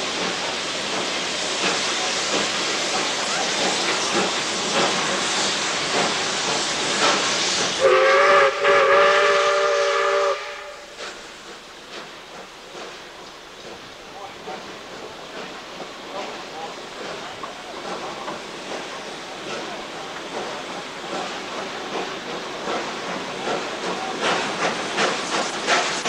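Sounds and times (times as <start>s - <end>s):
moving train rushing noise: 0.0s - 26.0s
steam locomotive whistle: 7.8s - 11.0s.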